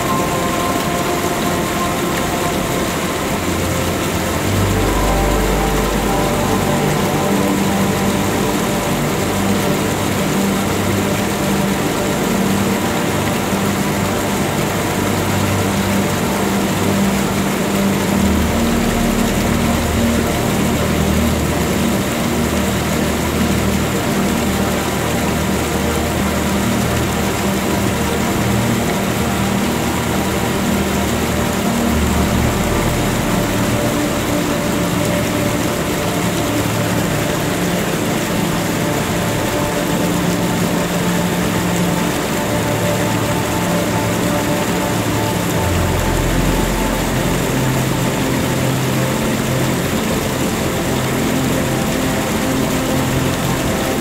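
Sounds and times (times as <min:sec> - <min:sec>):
ambient droning music: 0:00.0 - 0:54.0.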